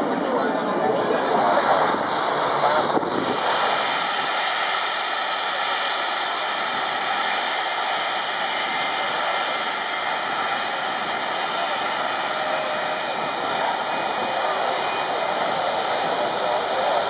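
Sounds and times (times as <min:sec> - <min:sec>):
voices: 0:00.0 - 0:03.5, 0:05.3 - 0:17.0
jet engines running: 0:00.0 - 0:17.0.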